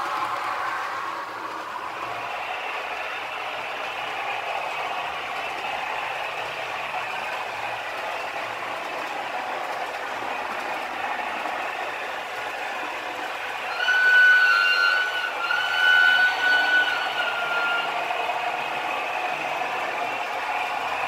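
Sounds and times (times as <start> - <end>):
model train wheels clattering on rails: 0.0 - 15.2.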